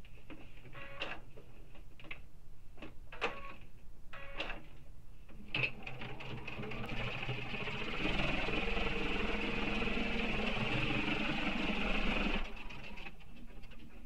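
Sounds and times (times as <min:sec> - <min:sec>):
sewing machine stitching: 0:05.5 - 0:14.0.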